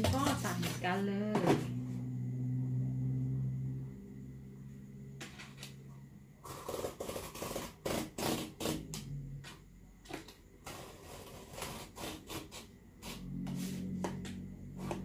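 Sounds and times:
faint low hum: 0.1 - 6.4
knife slicing cardboard: 10.6 - 13.2.

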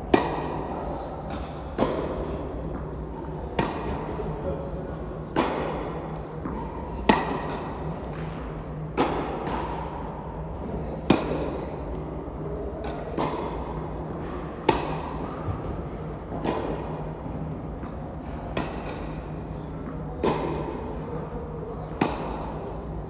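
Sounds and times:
tennis ball bounces: 0.1 - 0.6, 1.3 - 4.0, 5.3 - 9.9, 11.0 - 11.4, 12.8 - 17.2, 17.8 - 20.8, 21.8 - 23.0
tennis racket strikes: 0.1 - 0.6, 1.3 - 4.0, 5.3 - 10.0, 11.0 - 11.5, 12.8 - 15.6, 16.3 - 17.0, 17.8 - 20.9, 21.9 - 23.0.

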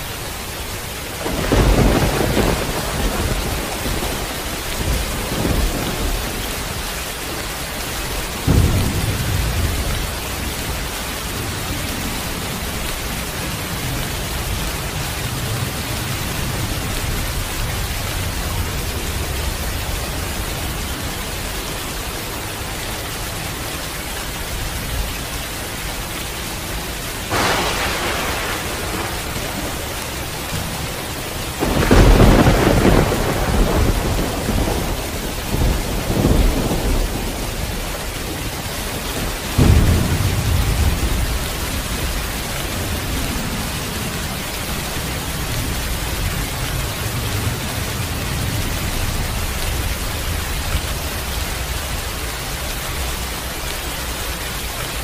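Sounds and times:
heavy rain falling: 0.0 - 55.0
deep thunder rumble: 1.1 - 20.8, 27.3 - 51.9
thunder clap: 1.2 - 6.9, 8.1 - 13.8, 27.3 - 44.3.

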